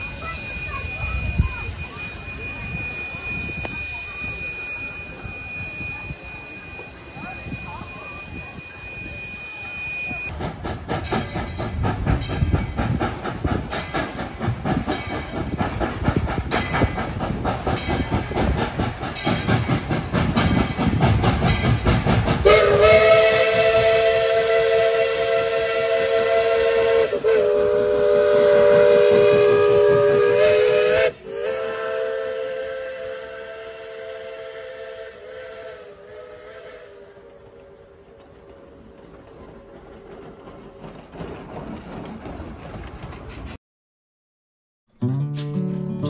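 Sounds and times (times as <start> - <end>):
chime whistle blast: 0.0 - 10.3
steam locomotive chuffing: 0.0 - 43.6.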